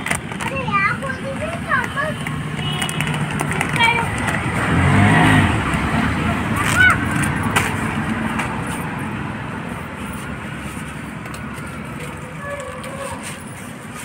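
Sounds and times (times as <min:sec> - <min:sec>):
street traffic noise: 0:00.0 - 0:14.0
vehicle rumbling past: 0:03.2 - 0:13.6.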